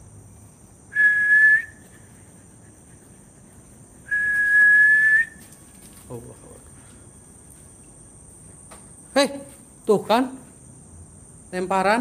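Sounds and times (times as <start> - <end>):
crickets trilling: 0.0 - 12.0
person whistling long notes: 0.9 - 1.9, 4.1 - 5.4.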